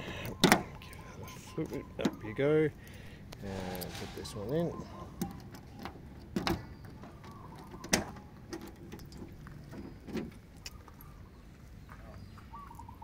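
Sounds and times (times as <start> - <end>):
car boot latch clicking: 0.2 - 0.8, 5.2 - 10.4.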